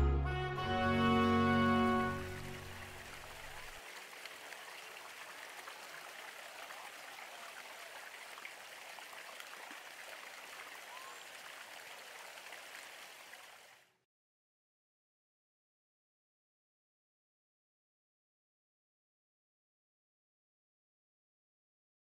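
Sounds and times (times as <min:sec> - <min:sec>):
fountain water splashing: 0:01.3 - 0:13.9.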